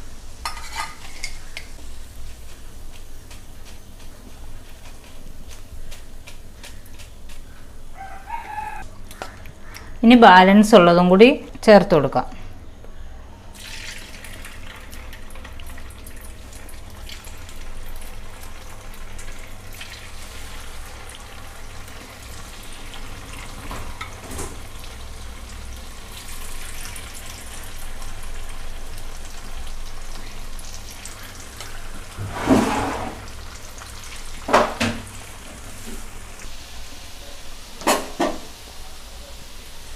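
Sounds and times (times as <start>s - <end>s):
deep-frying sizzle in oil: 13.5s - 39.9s.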